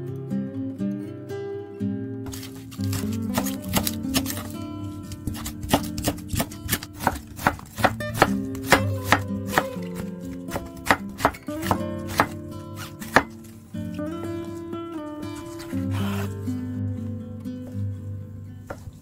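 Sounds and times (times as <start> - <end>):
background music with held notes: 0.0 - 19.0
knife chopping on wooden board: 2.3 - 4.5, 5.1 - 13.5.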